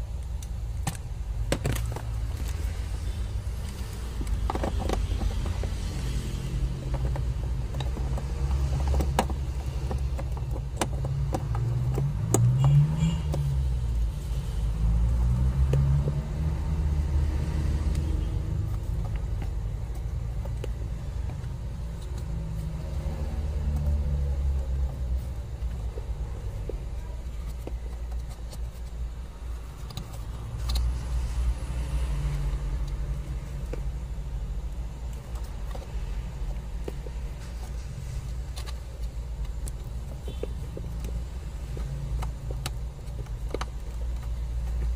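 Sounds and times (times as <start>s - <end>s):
vehicle engine rumble: 0.0s - 44.9s
hands tapping plastic housing: 4.1s - 14.0s.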